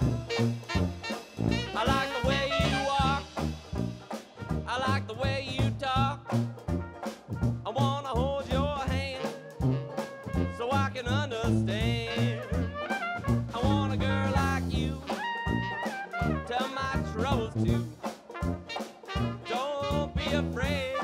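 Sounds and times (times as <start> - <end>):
trumpet with wide vibrato: 0.0 - 4.8, 9.1 - 11.0, 12.0 - 17.4, 18.3 - 21.0
banjo strumming: 0.0 - 21.0
drum kit: 0.0 - 21.0
sousaphone bass line: 0.0 - 21.0.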